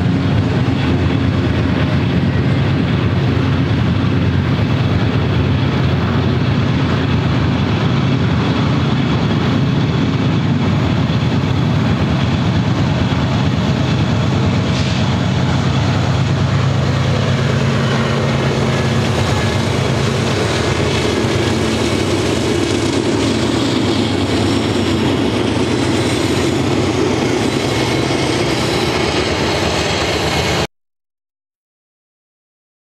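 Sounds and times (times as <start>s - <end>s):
diesel locomotive engine rumble: 0.0s - 30.7s
train wheels on rails: 0.0s - 30.7s.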